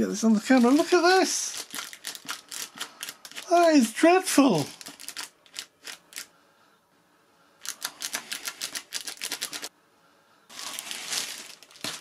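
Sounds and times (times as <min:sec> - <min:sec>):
plastic bag crinkling: 0:00.4 - 0:03.5, 0:04.6 - 0:06.3, 0:07.6 - 0:09.7, 0:10.5 - 0:12.0.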